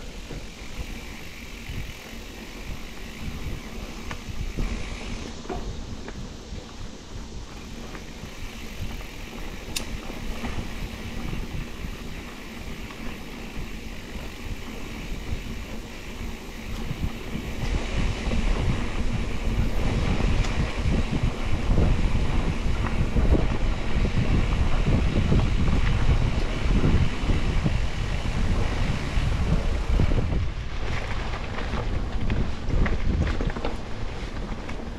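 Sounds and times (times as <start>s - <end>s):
bike clicks and rattles: 0.0s - 34.9s
tyres rumbling on dirt: 0.0s - 34.9s
wind buffeting microphone: 0.0s - 34.9s.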